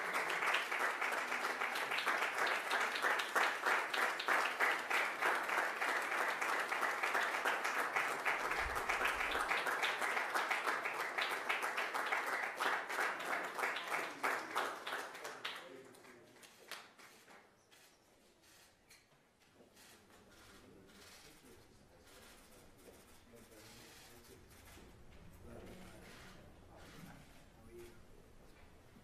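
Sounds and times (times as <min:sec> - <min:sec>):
guests applauding: 0:00.0 - 0:17.2.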